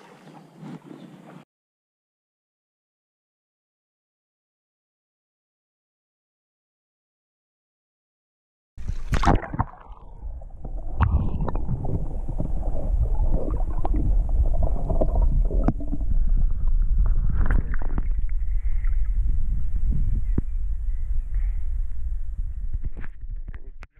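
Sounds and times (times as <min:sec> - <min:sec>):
loud splash: 0:08.8 - 0:16.2
water sloshing: 0:08.8 - 0:19.0
low underwater rumble: 0:08.8 - 0:23.9.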